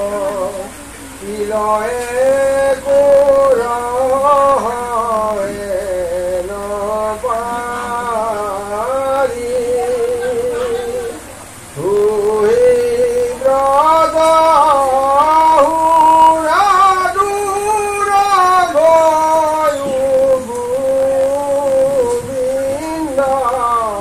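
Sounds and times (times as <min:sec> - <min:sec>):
person singing devotional chant: 0:00.0 - 0:24.0.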